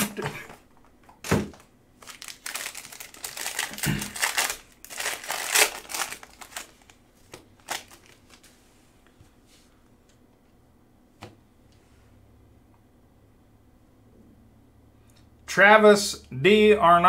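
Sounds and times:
foil wrapper tearing and crinkling: 0:02.0 - 0:07.0, 0:07.6 - 0:08.5.

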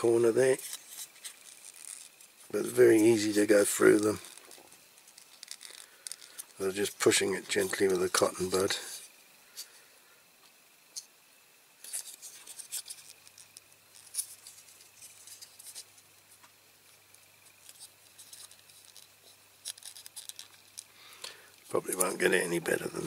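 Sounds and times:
plastic clicks and crackles: 0:03.9 - 0:06.6, 0:17.5 - 0:22.2.

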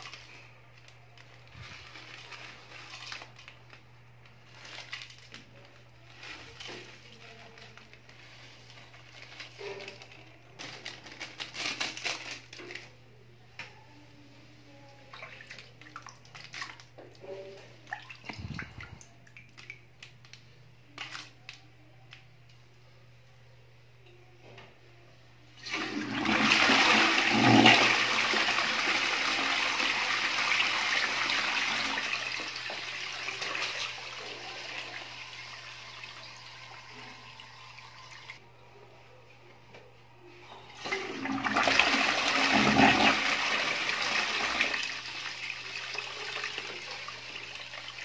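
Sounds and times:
toilet refill hiss: 0:25.6 - 0:37.8, 0:40.8 - 0:48.0
toilet flushing: 0:25.6 - 0:38.4, 0:40.8 - 0:48.0.

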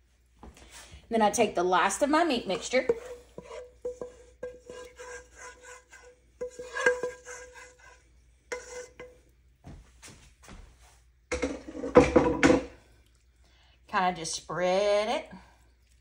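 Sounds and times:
wooden spoon scraping a skillet: 0:02.2 - 0:09.3, 0:11.3 - 0:12.7.

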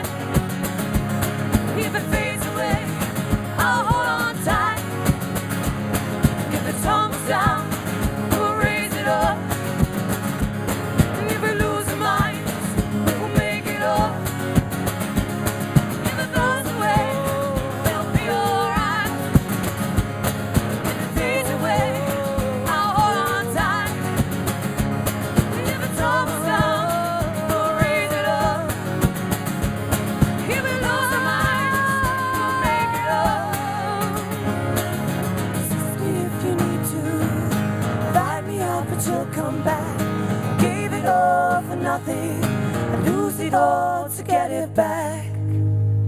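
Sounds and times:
drums beating: 0:00.0 - 0:33.1
acoustic guitars strumming: 0:00.0 - 0:46.0
person singing: 0:01.7 - 0:05.1, 0:06.5 - 0:09.6, 0:11.1 - 0:14.3, 0:16.0 - 0:19.4, 0:20.8 - 0:24.3, 0:25.4 - 0:28.9, 0:30.4 - 0:34.5, 0:35.7 - 0:45.6.

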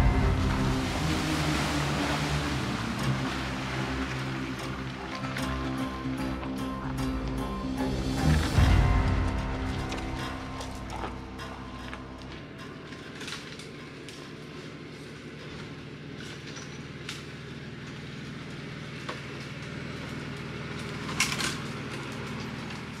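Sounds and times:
car engine running: 0:00.0 - 0:23.0.

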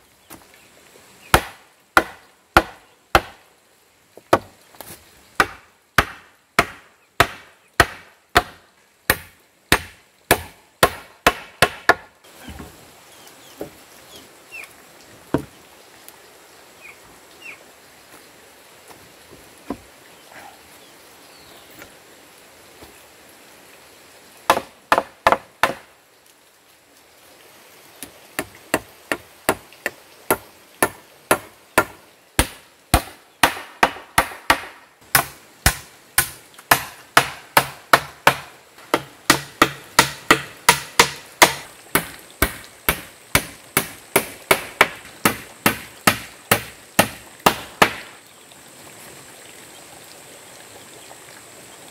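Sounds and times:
hammer striking timber: 0:01.3 - 0:03.4, 0:05.4 - 0:12.1, 0:24.5 - 0:25.9, 0:28.4 - 0:48.1.

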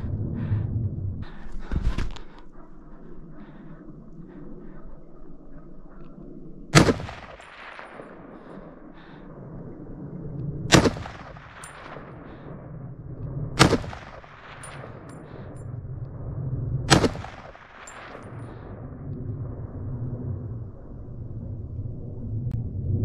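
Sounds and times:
rifle shots with echo: 0:06.7 - 0:08.6, 0:10.7 - 0:12.4, 0:13.6 - 0:15.4, 0:16.9 - 0:18.3.

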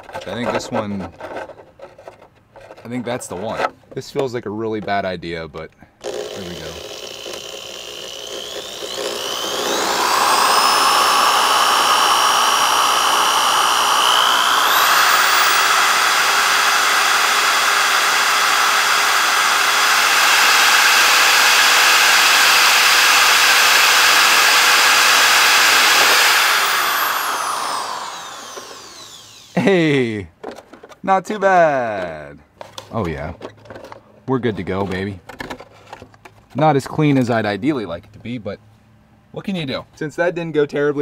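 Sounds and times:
electric drill whining: 0:06.0 - 0:29.8.

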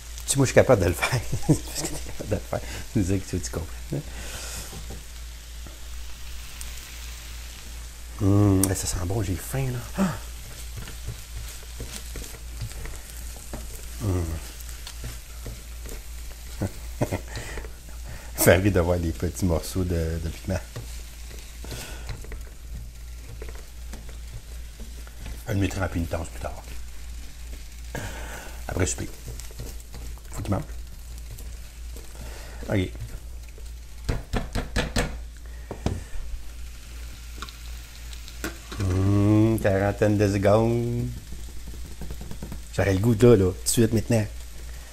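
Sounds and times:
vegetables sizzling in a wok: 0:00.0 - 0:44.9
person humming: 0:10.0 - 0:10.2, 0:14.0 - 0:14.5, 0:38.8 - 0:39.6
spatula clicking on pan: 0:41.1 - 0:42.7.

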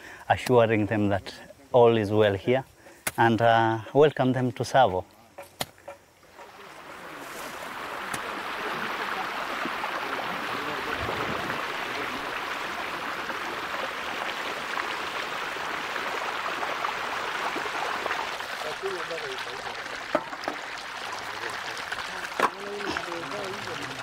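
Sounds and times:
water pouring into pit: 0:06.3 - 0:24.0.

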